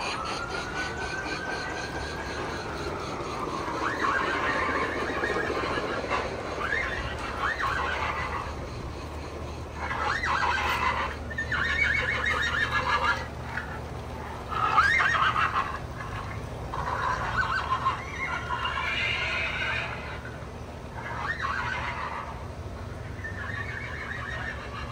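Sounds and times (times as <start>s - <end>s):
low steady hum: 0.0s - 24.9s
recorded horse neighing: 14.5s - 20.3s, 21.0s - 22.5s, 23.1s - 24.9s.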